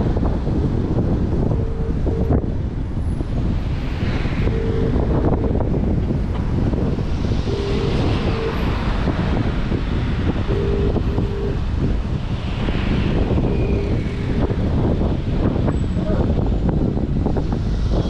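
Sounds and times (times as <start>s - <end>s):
slow-moving traffic rumble: 0.0s - 18.0s
wind buffeting microphone: 0.0s - 18.0s
short double beep: 4.5s - 5.0s, 7.5s - 8.6s, 10.5s - 11.6s.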